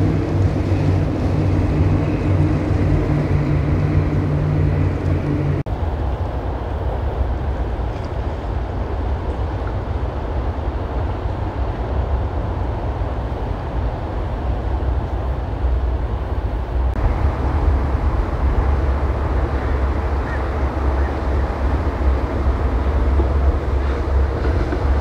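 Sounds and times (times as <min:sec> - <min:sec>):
choppy water washing: 0:00.0 - 0:05.9, 0:17.0 - 0:25.0
wind buffeting microphone: 0:00.0 - 0:25.0.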